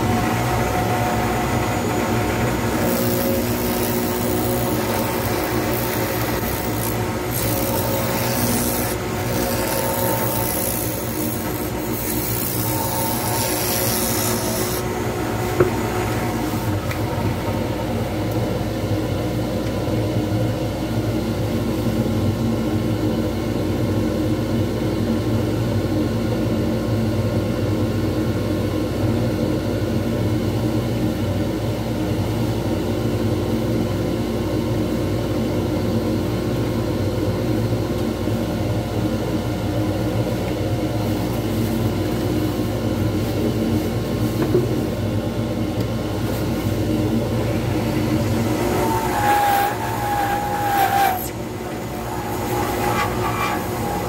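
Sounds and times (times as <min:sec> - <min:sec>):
turning tool cutting: 0:00.0 - 0:17.4, 0:47.4 - 0:54.0
lathe running: 0:00.0 - 0:19.4, 0:46.0 - 0:54.0.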